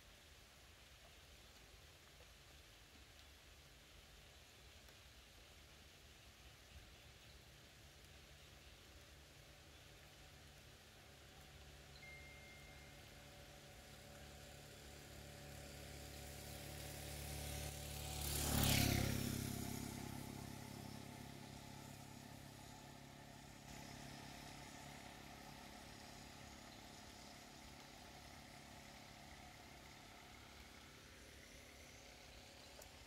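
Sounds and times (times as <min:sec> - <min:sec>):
vehicle driving past: 0:12.5 - 0:33.0.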